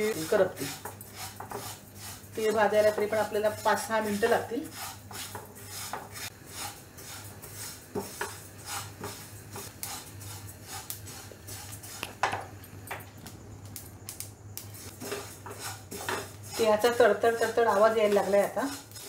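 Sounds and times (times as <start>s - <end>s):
spatula scraping a pan: 0.0s - 12.1s, 14.7s - 19.0s
seeds crackling and popping: 9.6s - 16.9s.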